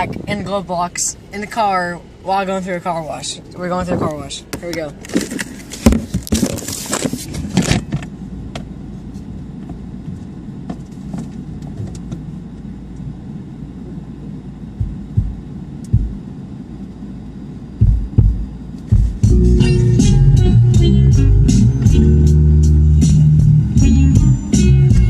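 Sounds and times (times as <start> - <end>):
muffled car wash rumble: 0.0 - 25.0
dull thumps: 14.8 - 16.2.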